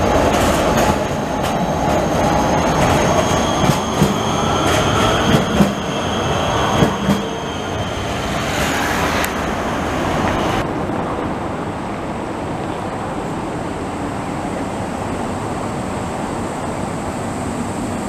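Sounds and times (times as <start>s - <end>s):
high whine: 0.0s - 10.7s
street hum: 0.0s - 18.0s
tram rolling noise: 0.0s - 18.0s.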